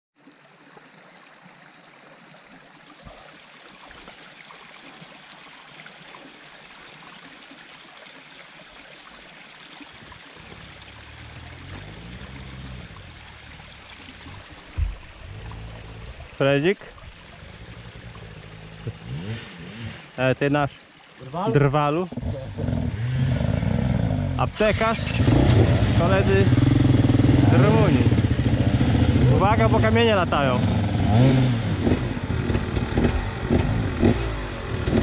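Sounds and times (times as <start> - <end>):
stream running over rocks: 0.2 - 35.0
loud low thump: 14.8 - 15.6
dirt bike engine: 21.6 - 35.0.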